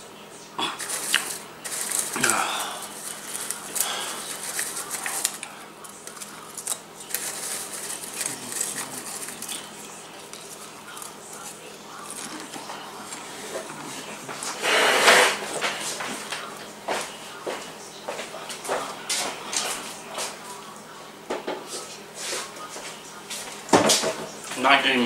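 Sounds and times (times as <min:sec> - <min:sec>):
crunching while eating: 0:00.6 - 0:16.6
popcorn rustling in plastic bowl: 0:00.6 - 0:17.2
loud scrape: 0:14.5 - 0:15.4.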